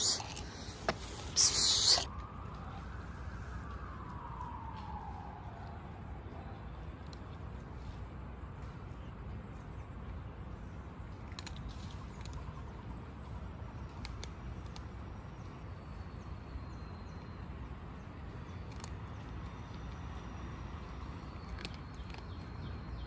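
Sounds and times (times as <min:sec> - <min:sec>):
cat crunching dry kibble: 0:00.0 - 0:02.1, 0:11.1 - 0:15.8, 0:17.2 - 0:23.0.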